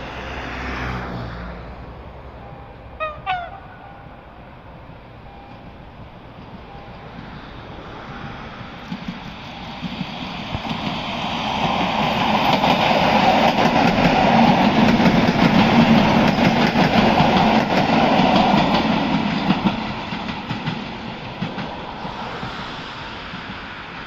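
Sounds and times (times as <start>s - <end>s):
train passing: 0.0s - 24.0s
wheels clicking over rail joints: 8.7s - 22.6s.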